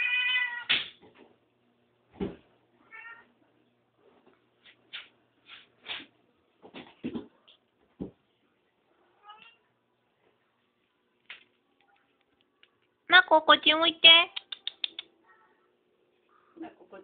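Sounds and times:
cat meowing: 0.0s - 0.7s, 2.8s - 3.3s.

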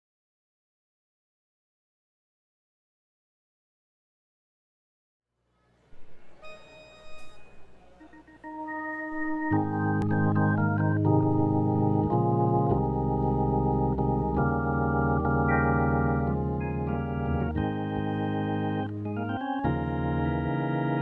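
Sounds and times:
organ playing sustained chords: 6.4s - 21.0s.

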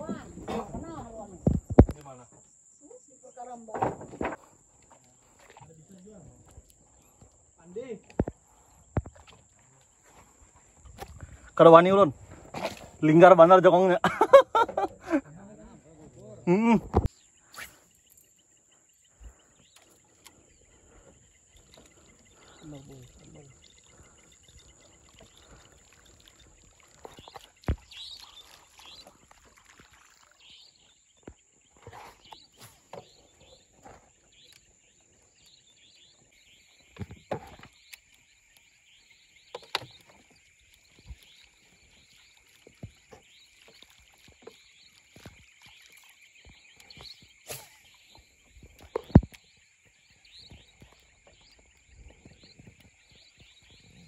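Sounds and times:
high-pitched insect chorus: 0.0s - 54.0s
lower insect trill: 0.0s - 54.0s
knocks and clicks on wooden canoe: 36.8s - 38.6s, 39.4s - 41.3s, 48.1s - 53.7s.

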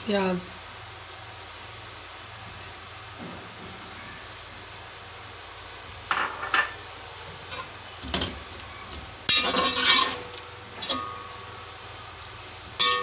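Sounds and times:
metal ladle scraping cooking pot: 9.2s - 11.6s.

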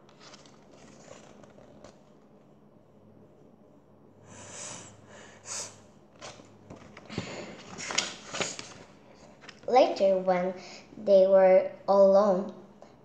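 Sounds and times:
paper rustling: 0.0s - 2.4s, 6.2s - 9.7s.

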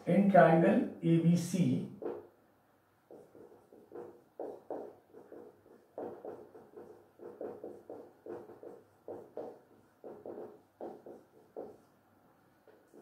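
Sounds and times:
marker squeaking on whiteboard: 1.9s - 2.4s, 3.0s - 12.0s, 12.6s - 13.0s.

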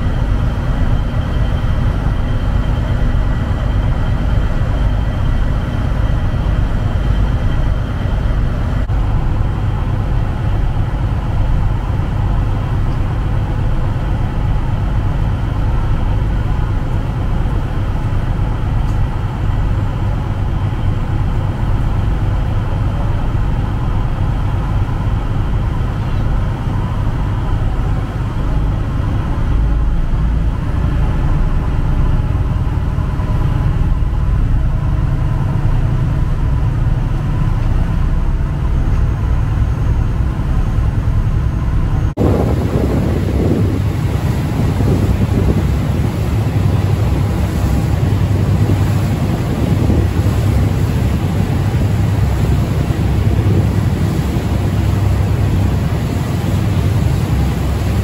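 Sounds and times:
ferry engine droning: 0.0s - 58.0s
even rushing noise: 22.0s - 58.0s.

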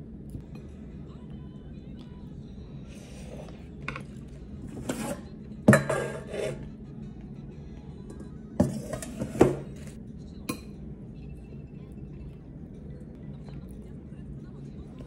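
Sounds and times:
faint background music: 0.0s - 15.0s
tableware clinking: 3.8s - 6.6s, 8.1s - 9.9s.

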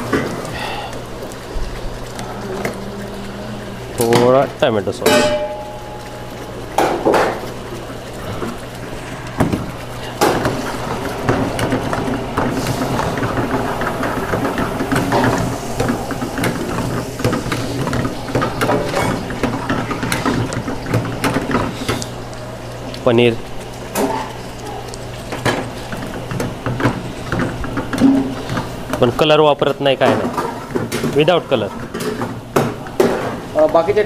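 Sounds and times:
low hum: 0.0s - 7.0s.

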